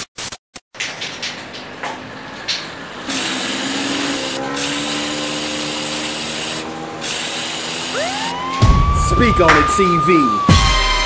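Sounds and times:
spray paint can hissing: 3.1s - 8.4s.

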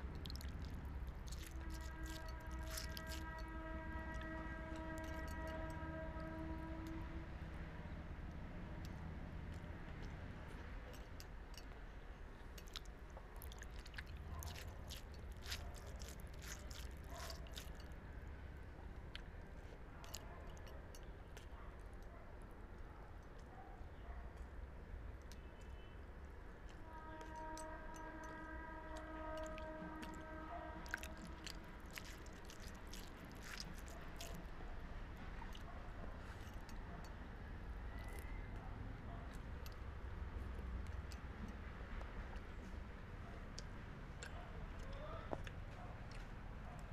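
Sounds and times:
person chewing crunchy food: 0.0s - 5.6s, 12.4s - 18.0s, 28.9s - 34.6s
close-up chewing: 0.0s - 6.1s, 8.8s - 18.0s, 19.0s - 21.8s, 26.7s - 37.2s, 37.9s - 39.9s, 43.3s - 46.9s
low steady background hum: 0.0s - 46.9s
held horn tone: 1.1s - 8.0s, 26.7s - 32.4s.

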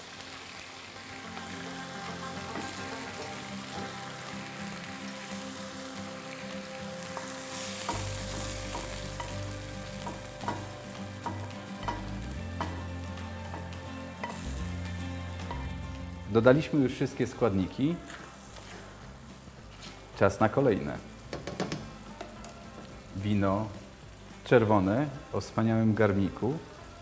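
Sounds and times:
meat sizzling in a frying pan: 0.0s - 17.0s.

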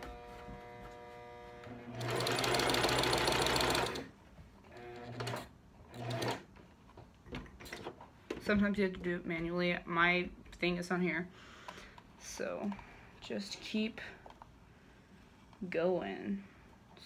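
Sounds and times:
sewing machine stitching: 1.7s - 4.1s, 4.7s - 6.5s.

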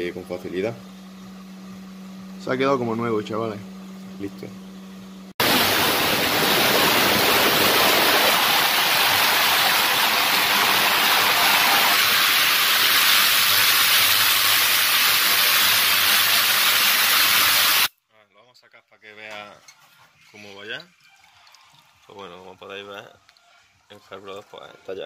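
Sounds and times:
ultrasonic cleaner hissing: 5.4s - 17.9s.

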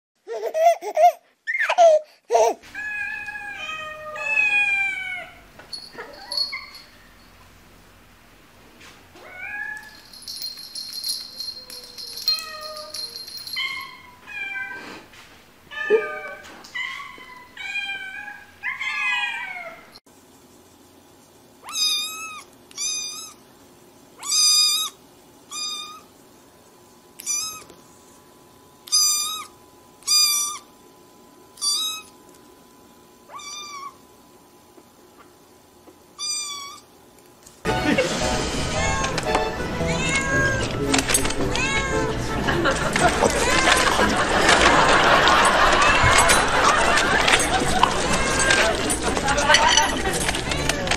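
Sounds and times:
cats meowing: 2.7s - 6.8s, 11.4s - 14.9s, 15.7s - 19.9s, 21.6s - 23.4s, 24.2s - 26.1s, 27.2s - 27.8s, 28.9s - 30.7s, 31.6s - 32.2s, 33.3s - 34.0s, 36.2s - 36.9s, 39.8s - 42.2s, 47.3s - 49.0s.

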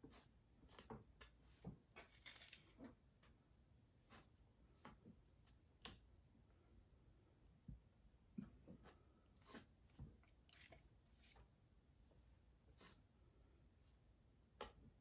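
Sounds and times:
painting tool scraping canvas: 0.0s - 3.0s, 4.0s - 5.6s, 8.4s - 14.1s.

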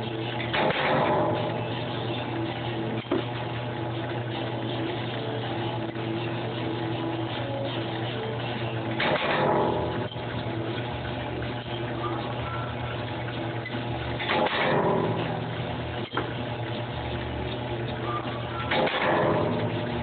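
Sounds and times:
punch press motor hum: 0.0s - 4.6s, 8.8s - 20.0s
press stamping surge: 0.5s - 1.5s, 14.2s - 15.3s, 18.6s - 19.9s.

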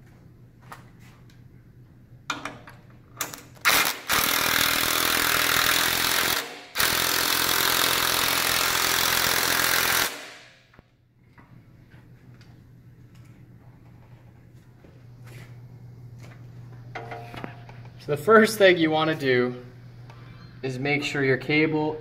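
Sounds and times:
impact driver hammering: 3.7s - 10.5s.

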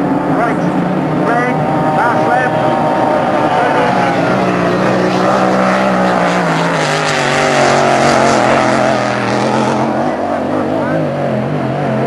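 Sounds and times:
powerboat engine passing: 0.0s - 12.0s.

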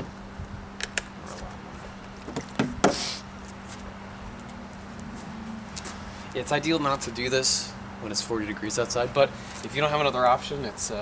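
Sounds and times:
bottle knocking on car trunk lid: 2.6s - 3.0s.

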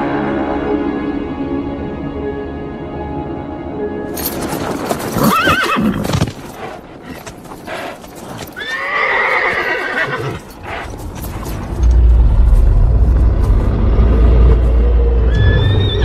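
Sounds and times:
horse whinnying: 4.2s - 11.7s.

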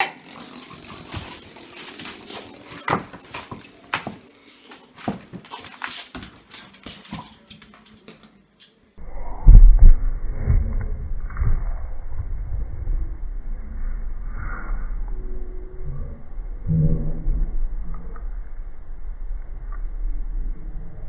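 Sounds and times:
dog claws on wooden floor: 1.1s - 8.7s.

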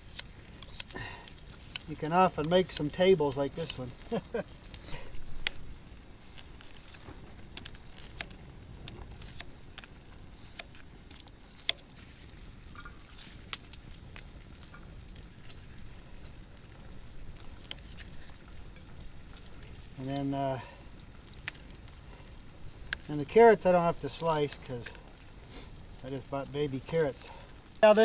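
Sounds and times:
bacon sizzling: 0.0s - 28.0s.

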